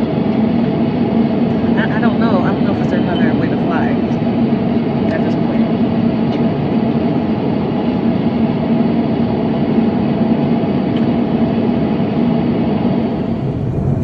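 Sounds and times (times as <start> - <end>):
airliner cabin roar: 0.0 - 14.0
constant low hum: 0.0 - 14.0.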